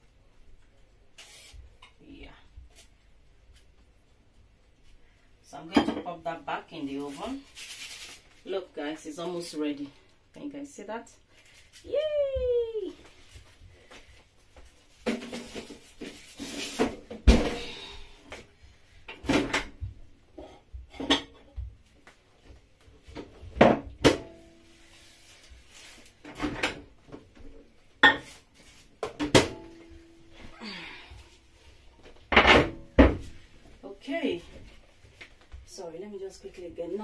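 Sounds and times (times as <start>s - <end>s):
dishes and utensils clattering: 20.4s - 21.5s.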